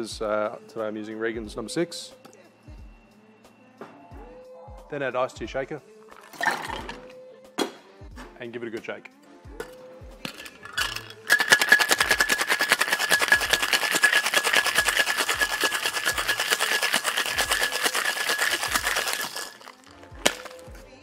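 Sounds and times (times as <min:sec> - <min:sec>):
ice rattling in metal shaker: 0:06.2 - 0:07.1, 0:10.2 - 0:20.7.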